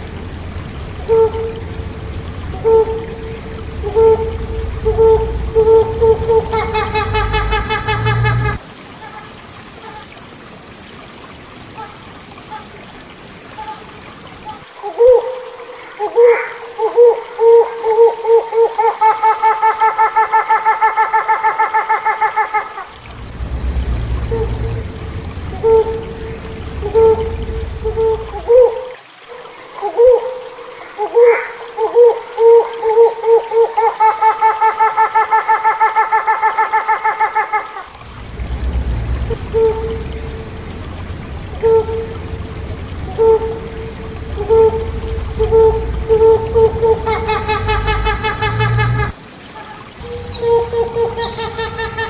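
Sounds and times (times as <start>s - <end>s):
steady hiss: 0.0s - 14.8s, 22.8s - 31.0s, 37.8s - 52.0s
hornbill calls: 1.0s - 10.0s, 23.3s - 28.6s, 38.6s - 40.5s, 41.6s - 52.0s.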